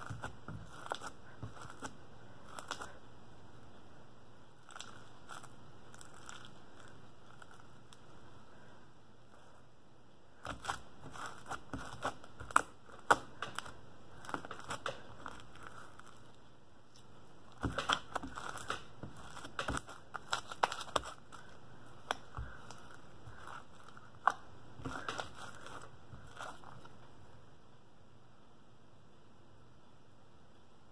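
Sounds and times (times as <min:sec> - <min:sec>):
slime crackling and popping: 0:00.0 - 0:03.0, 0:04.6 - 0:08.0, 0:10.4 - 0:16.4, 0:17.5 - 0:26.6.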